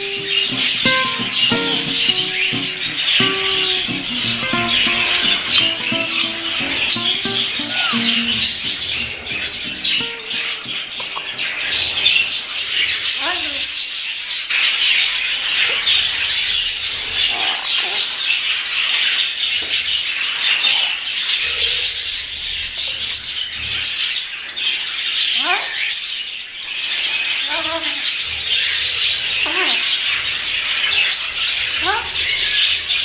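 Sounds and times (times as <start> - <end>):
parrots whistled calls: 0.0 - 11.4
high chatter of many birds: 0.0 - 33.0.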